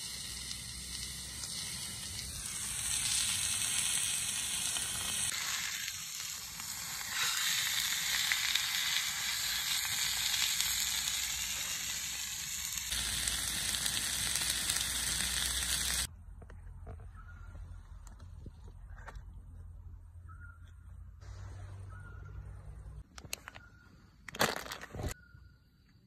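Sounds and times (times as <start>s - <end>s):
meat sizzling in a frying pan: 0.0s - 16.1s.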